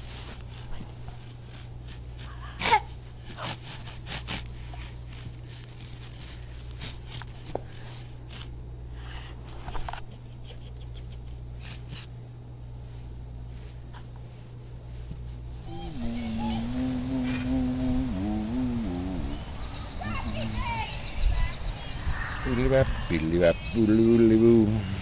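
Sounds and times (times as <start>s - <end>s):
steady low hum: 0.0s - 25.0s
infant's breathy vocal noises: 15.7s - 20.6s.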